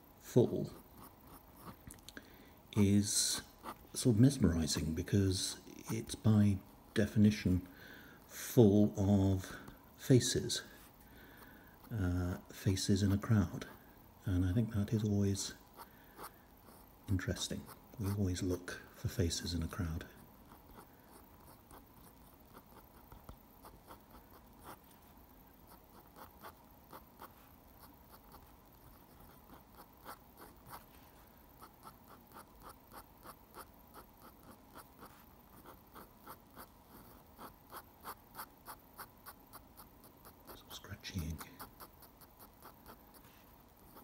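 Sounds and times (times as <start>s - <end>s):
pen scratching on paper: 0.6s - 1.8s, 2.8s - 4.0s, 20.5s - 24.8s, 25.7s - 31.0s, 31.6s - 44.0s.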